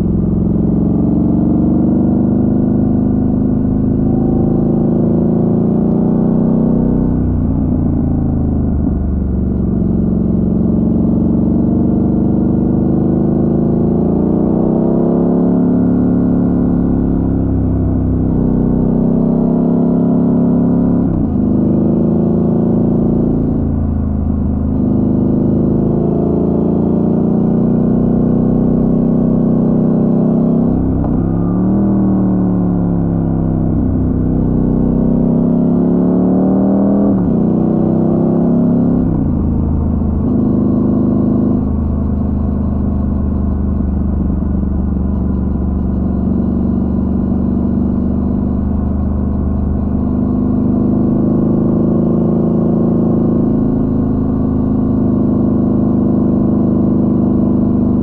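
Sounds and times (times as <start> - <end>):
motorcycle engine shifting gears: 18.4 - 58.0.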